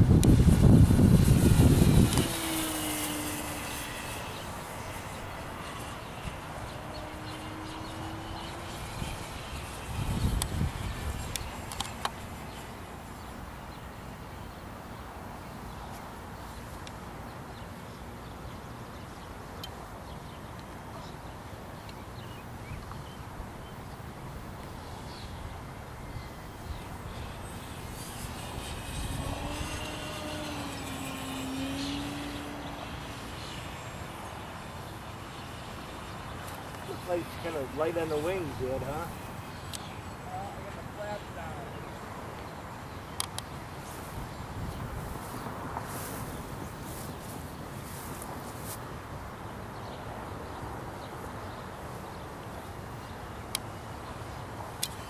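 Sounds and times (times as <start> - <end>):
wind on microphone: 0.0 - 14.1, 25.2 - 34.6, 43.8 - 49.3
model airplane motor whine: 0.0 - 14.6, 25.3 - 43.0, 43.7 - 48.8.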